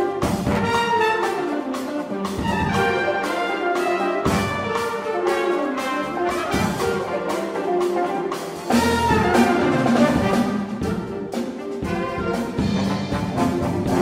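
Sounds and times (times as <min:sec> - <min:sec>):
brass rhythmic figures: 0:00.0 - 0:14.0
jazz big band playing: 0:00.0 - 0:14.0.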